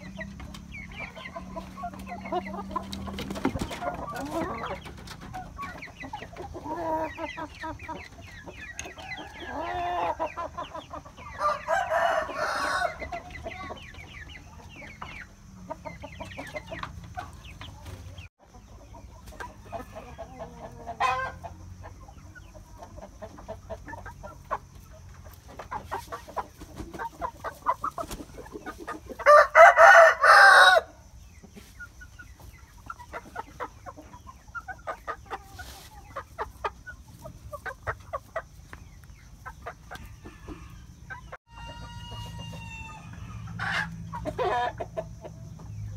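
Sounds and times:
chickens clucking: 0.0s - 45.9s
rooster crowing: 8.7s - 10.2s, 11.3s - 13.2s, 19.5s - 21.4s, 29.2s - 31.0s, 40.0s - 44.8s.

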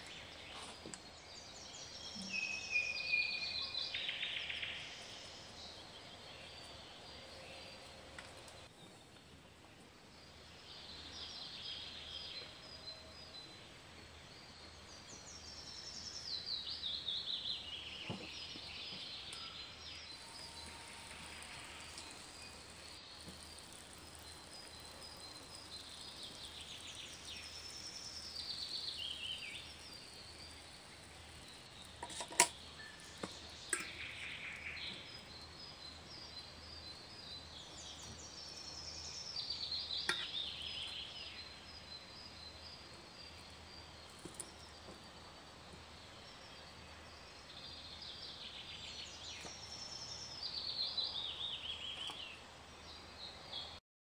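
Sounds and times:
faint high chirping: 0.0s - 9.3s, 10.3s - 53.8s
songbird singing: 0.0s - 53.8s.

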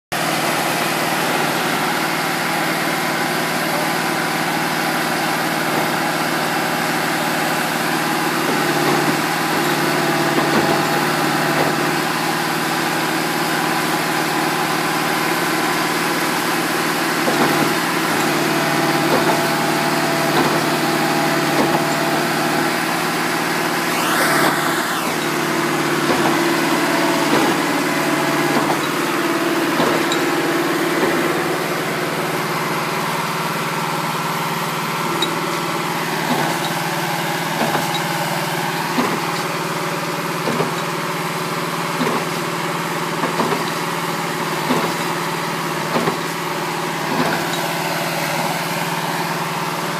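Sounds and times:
diesel engine idling: 0.2s - 41.9s, 45.2s - 49.9s
rising and falling whine: 23.6s - 33.2s.

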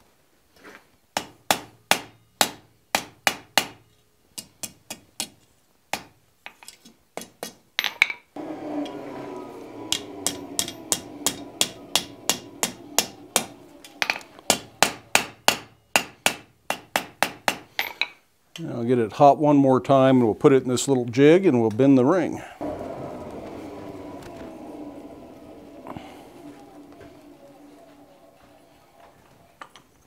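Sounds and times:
steady background noise: 8.4s - 18.9s, 22.2s - 30.0s
hammer striking metal on anvil: 9.9s - 18.0s.

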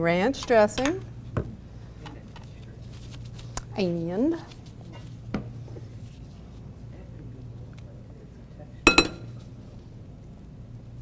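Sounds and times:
low steady hum: 0.0s - 11.0s
utensil clinking against bowl: 8.9s - 9.4s.

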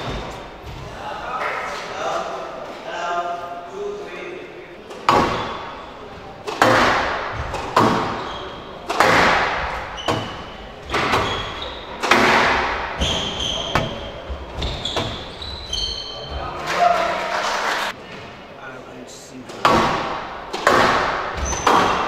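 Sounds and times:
squash ball hitting rackets and walls: 0.0s - 1.0s, 4.8s - 16.0s, 19.5s - 22.0s
shoes squeaking on court: 8.0s - 8.9s, 9.6s - 16.6s.

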